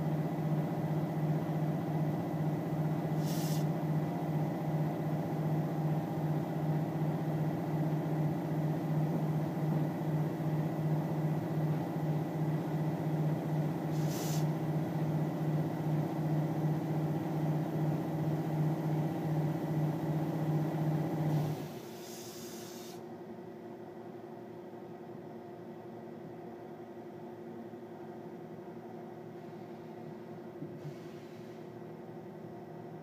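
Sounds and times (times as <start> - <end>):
short hiss: 3.2 - 3.7, 13.9 - 14.5, 22.0 - 23.0.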